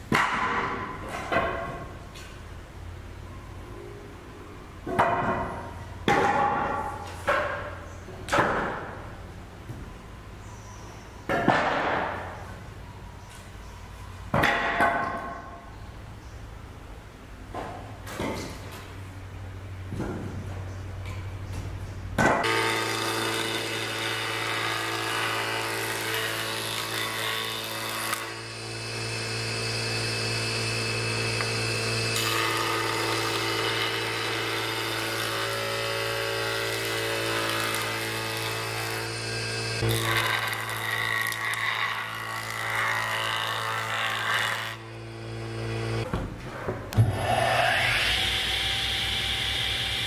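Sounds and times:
boards being cut: 22.2s - 46.1s, 47.0s - 50.0s
jointer motor humming: 22.4s - 46.0s, 47.1s - 50.0s.

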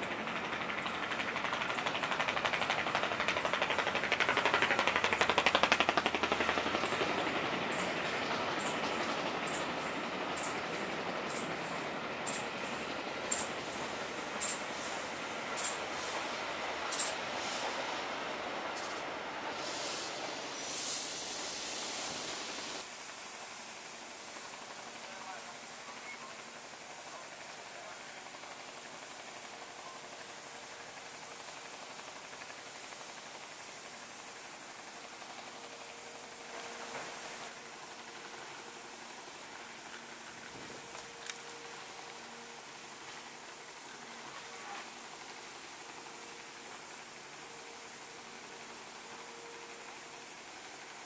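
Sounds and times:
steam hissing: 0.0s - 51.0s
train coaches rolling slowly: 0.0s - 51.0s
fast mechanical pulsing: 0.1s - 7.9s.

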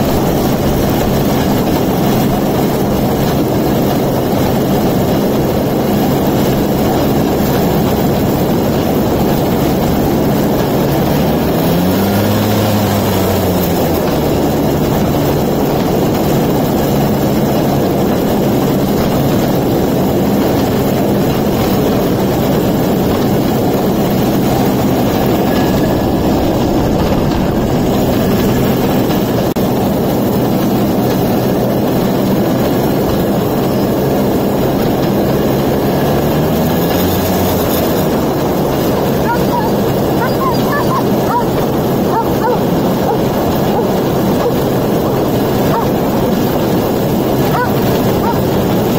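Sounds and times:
steady rushing noise: 0.0s - 48.9s
two-stroke engine running: 0.0s - 48.9s.

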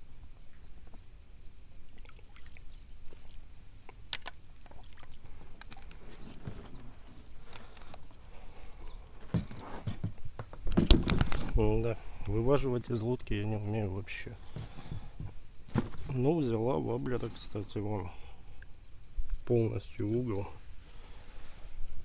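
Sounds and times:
water splashes: 2.0s - 3.5s, 4.6s - 5.4s.

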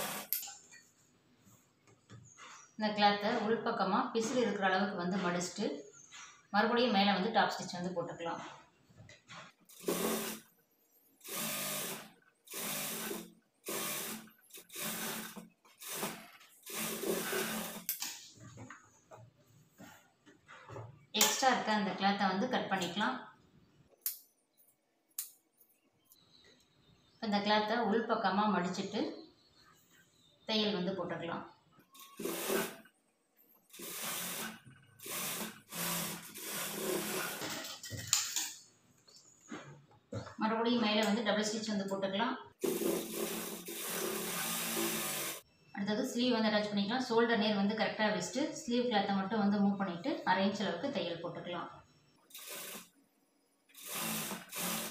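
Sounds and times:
sewing machine running: 0.0s - 0.4s, 9.7s - 10.4s, 11.2s - 17.9s, 32.0s - 32.8s, 33.7s - 37.7s, 42.6s - 45.4s, 52.3s - 52.9s, 53.8s - 54.9s.

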